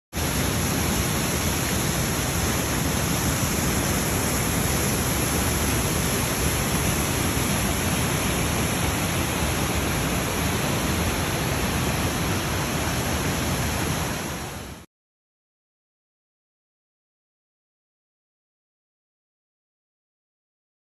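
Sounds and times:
waterfall rushing: 0:00.2 - 0:14.9.

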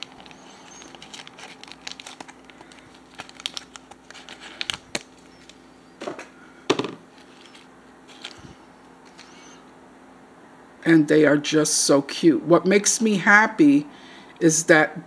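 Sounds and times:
plastic packaging crinkling: 0:00.0 - 0:06.4, 0:07.0 - 0:09.5.

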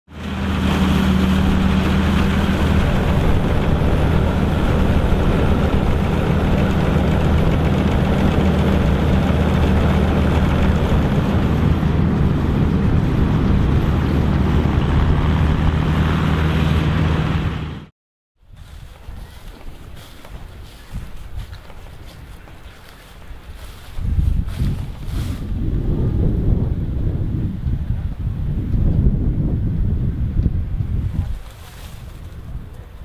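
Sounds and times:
combine harvester engine drone: 0:00.1 - 0:17.9, 0:18.8 - 0:28.4, 0:29.1 - 0:33.0
noisy rush of machinery: 0:00.1 - 0:17.9.

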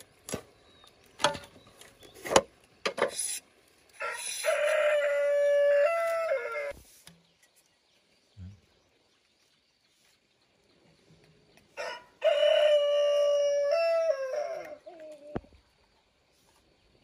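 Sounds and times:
bamboo clicks and knocks: 0:00.0 - 0:03.2
rooster crowing: 0:04.0 - 0:06.7, 0:11.8 - 0:15.0.

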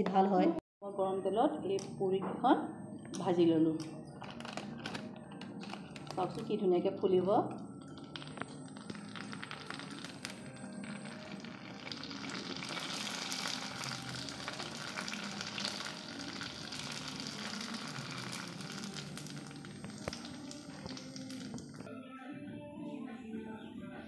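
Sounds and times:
food deep-frying in hot oil: 0:07.9 - 0:21.6.

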